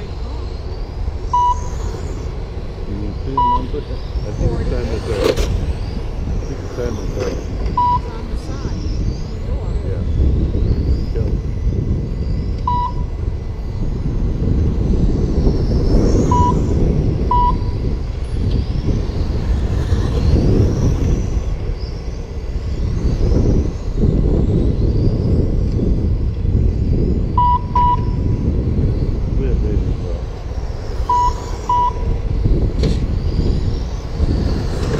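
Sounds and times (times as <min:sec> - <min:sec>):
rc car motors whining: 0:00.0 - 0:34.9
wind rumble on microphone: 0:00.0 - 0:34.9
short electronic beeps: 0:01.3 - 0:01.8, 0:03.3 - 0:03.8, 0:07.7 - 0:08.6, 0:12.6 - 0:13.2, 0:16.3 - 0:17.8, 0:27.3 - 0:28.2, 0:31.0 - 0:32.1.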